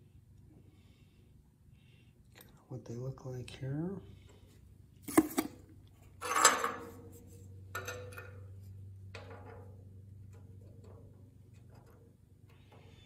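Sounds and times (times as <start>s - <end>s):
low steady hum: 0.0s - 13.0s
steel plates clanking on frame: 6.2s - 7.0s.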